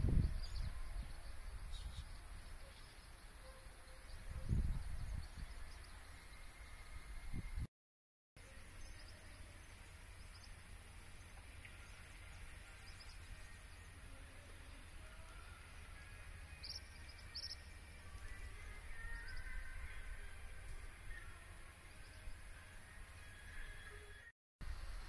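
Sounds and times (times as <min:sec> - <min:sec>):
low outdoor rumble: 0:08.4 - 0:25.0.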